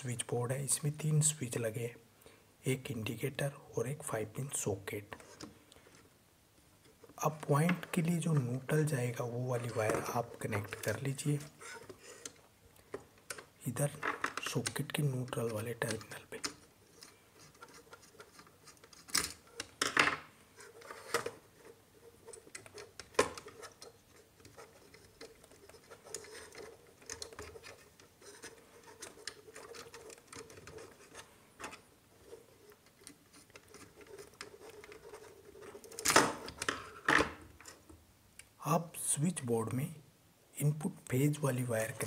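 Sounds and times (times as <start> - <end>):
wire scratching: 6.8 - 19.8, 20.5 - 37.9.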